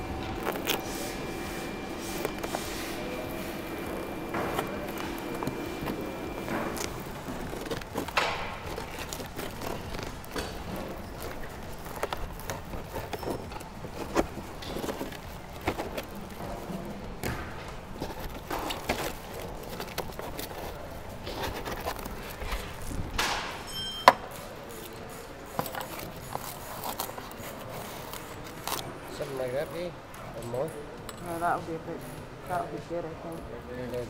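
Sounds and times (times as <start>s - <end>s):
foam scraping and rustling: 0.0s - 17.1s, 17.8s - 23.2s.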